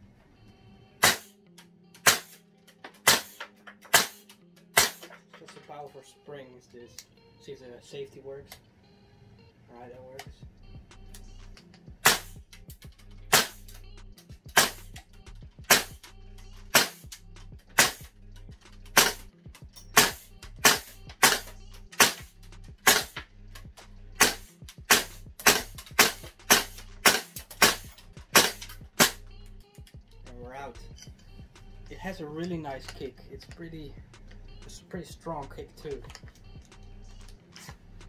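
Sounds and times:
airsoft rifle shots: 1.0 - 1.4, 2.0 - 2.4, 3.0 - 5.1, 12.0 - 12.4, 13.3 - 13.6, 14.5 - 14.9, 15.7 - 16.0, 16.7 - 17.1, 17.8 - 18.1, 19.0 - 19.3, 20.0 - 23.2, 24.2 - 29.2.

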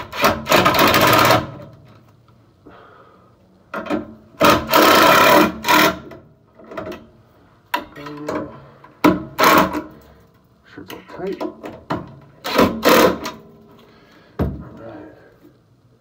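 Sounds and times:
impact driver driving screws: 0.0 - 1.6, 4.4 - 6.2, 12.4 - 13.4.

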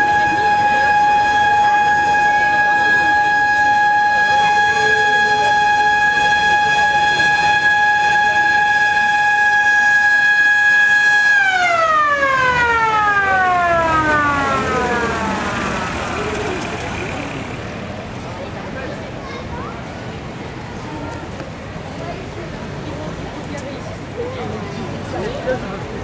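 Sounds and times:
siren winding down: 11.4 - 17.5.

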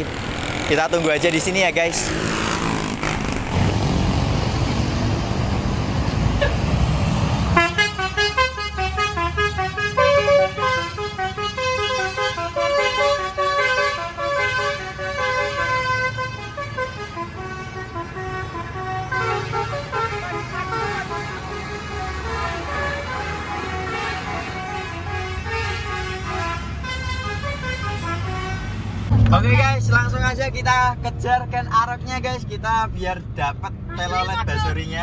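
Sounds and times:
bus engine and road noise: 0.0 - 35.0
musical air horn melody: 7.6 - 28.7.

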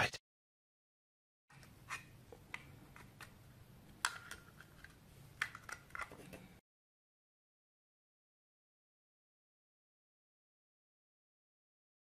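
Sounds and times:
plastic parts clicking together: 4.0 - 6.5.

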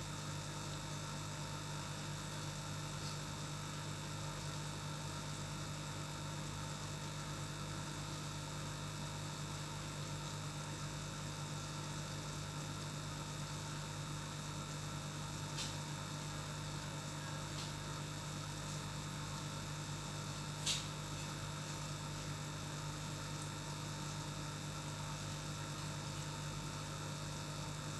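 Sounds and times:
aquarium air pump humming: 0.0 - 27.9.

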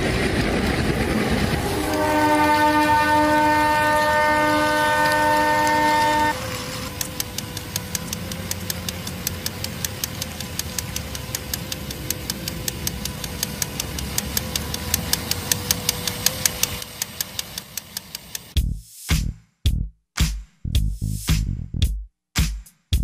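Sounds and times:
regular clicking of toy train: 0.0 - 18.6
small motor whining: 4.9 - 18.5
music: 18.6 - 23.0.

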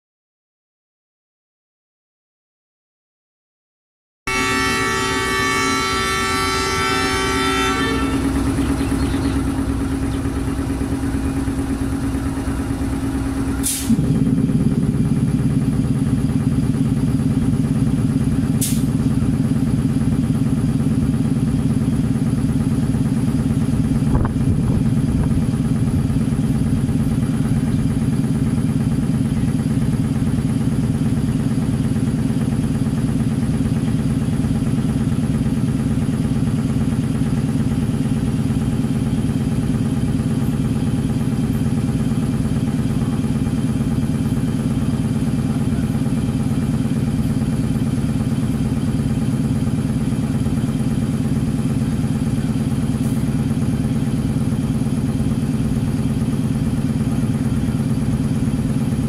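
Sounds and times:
locomotive horn: 4.3 - 13.9
diesel locomotive engine running: 4.3 - 59.0.

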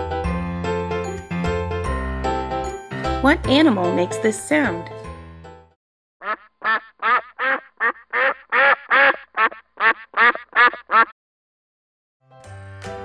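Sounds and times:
duck quacking: 6.2 - 11.2.

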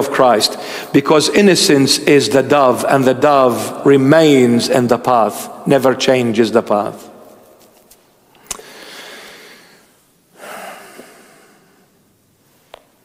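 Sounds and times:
man breathing: 0.5 - 0.9, 8.4 - 12.0.

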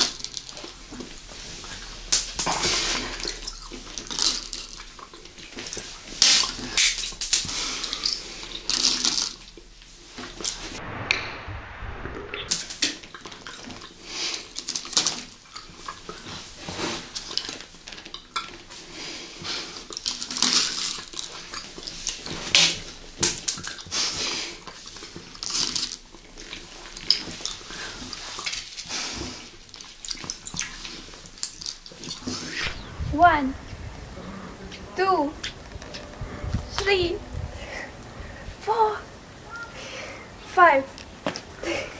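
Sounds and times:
chewing soft candies: 0.0 - 9.6.

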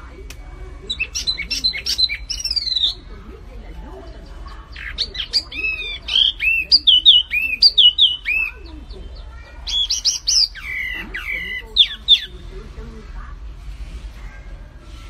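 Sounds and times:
songbird whistling: 0.9 - 3.1, 4.7 - 12.4.

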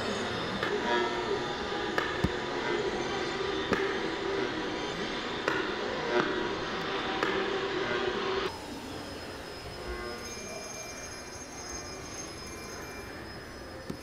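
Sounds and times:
steady hum: 0.0 - 10.6.

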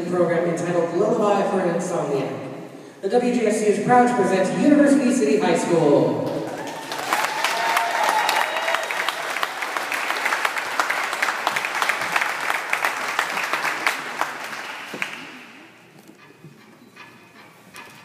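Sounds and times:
audience applauding: 6.3 - 15.7.

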